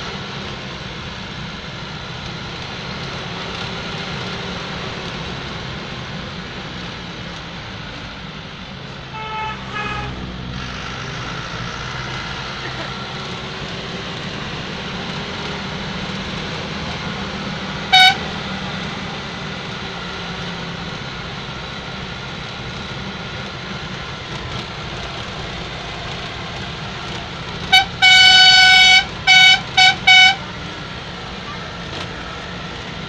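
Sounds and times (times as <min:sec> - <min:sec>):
engine and road hum: 0:00.0 - 0:33.0
vehicle horn toots: 0:09.1 - 0:10.3, 0:17.9 - 0:18.3, 0:27.6 - 0:30.5.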